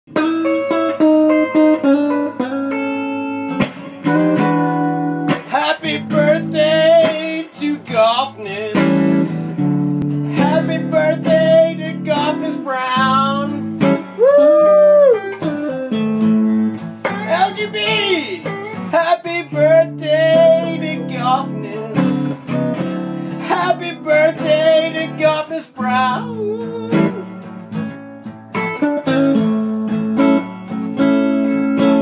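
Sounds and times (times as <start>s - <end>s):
acoustic guitar: 0.1s - 32.0s
person singing: 5.4s - 9.5s, 10.1s - 15.4s, 17.0s - 22.5s, 23.3s - 27.4s.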